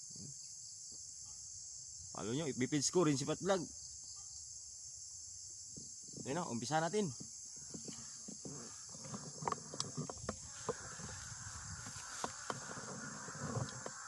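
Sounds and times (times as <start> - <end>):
high drone of insects: 0.0 - 14.0
rustling through ferns: 7.7 - 14.0.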